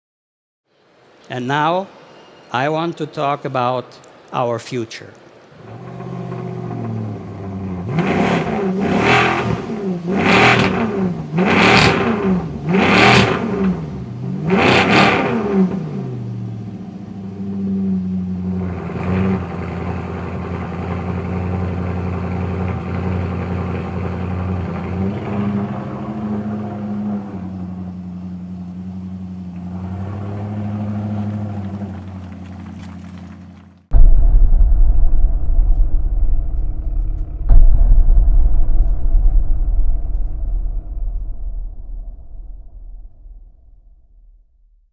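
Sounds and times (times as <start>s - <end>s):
sports car engine revving: 5.6s - 33.7s.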